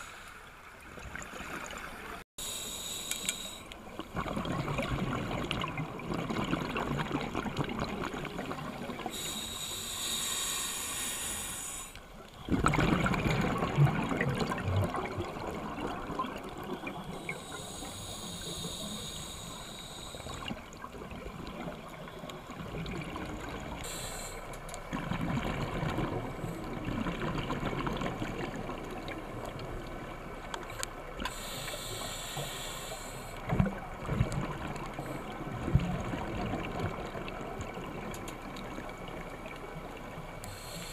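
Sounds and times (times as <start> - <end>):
regulator hissing inhalations: 2.4 - 3.7, 9.1 - 12.0, 17.1 - 20.5, 23.8 - 24.5, 31.3 - 33.4, 40.4 - 40.9
bubbly rush of exhaled air: 12.5 - 16.4.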